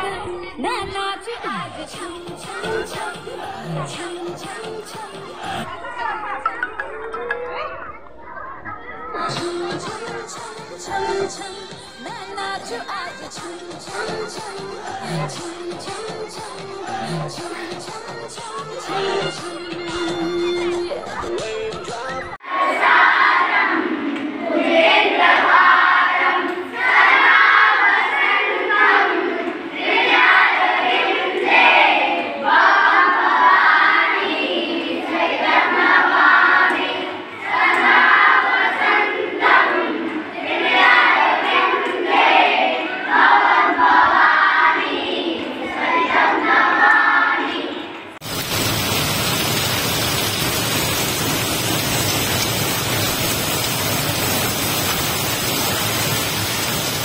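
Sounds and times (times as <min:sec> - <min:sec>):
children singing together: 0:00.0 - 0:48.2
steady rushing hiss: 0:48.2 - 0:57.0.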